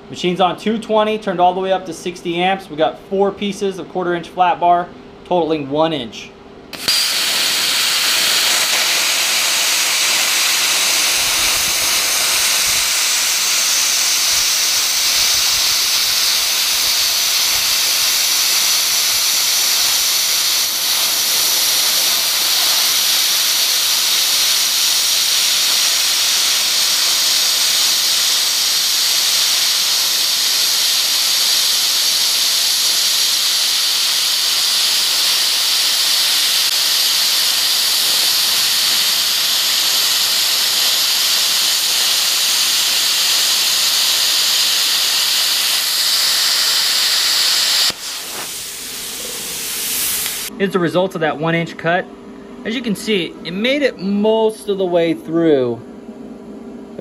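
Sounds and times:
plasma cutter hissing: 6.7 - 50.5.

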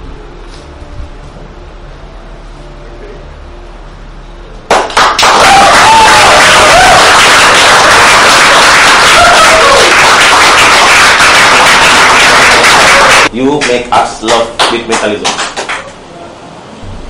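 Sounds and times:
applause and cheering: 4.7 - 15.9
people shouting: 5.2 - 10.2, 12.5 - 13.3.

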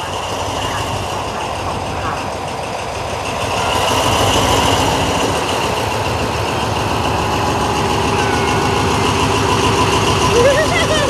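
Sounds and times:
locomotive engine rumble: 0.0 - 11.0
steady whine: 0.2 - 11.0.

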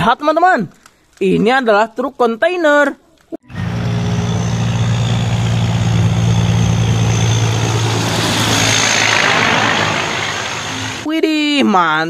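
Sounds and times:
truck diesel engine humming: 3.5 - 11.1
hiss: 7.4 - 11.1.

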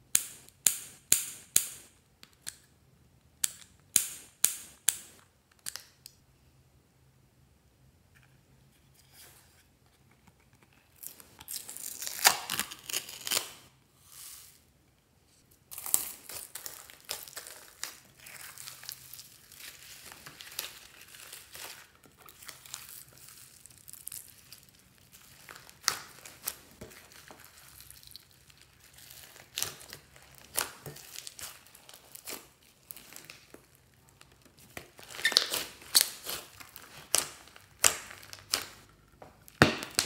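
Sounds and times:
crinkling and crackling with pops: 15.4 - 40.0.

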